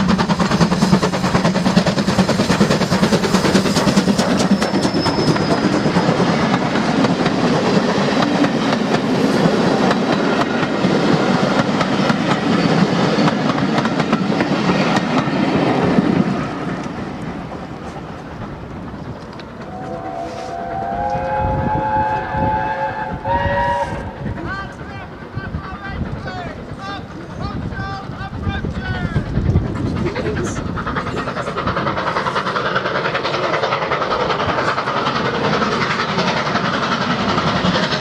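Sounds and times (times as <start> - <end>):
steam locomotive passing: 0.0 - 38.0
steam whistle chord: 19.7 - 24.1.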